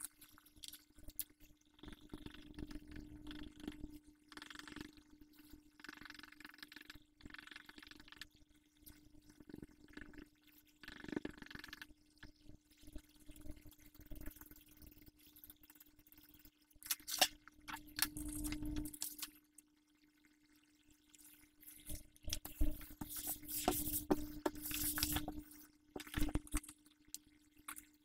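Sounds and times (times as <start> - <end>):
faint hum: 0.0 - 28.0
eraser scrubbing on paper: 22.4 - 25.4
paper being handled: 22.4 - 26.6.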